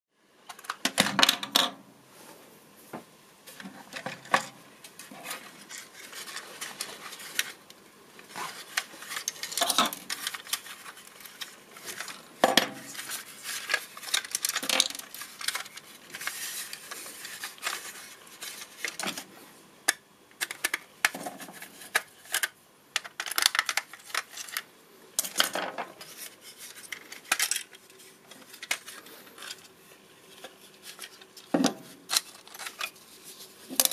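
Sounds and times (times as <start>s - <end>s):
small model parts clicking: 19.9s - 21.2s, 21.9s - 24.6s.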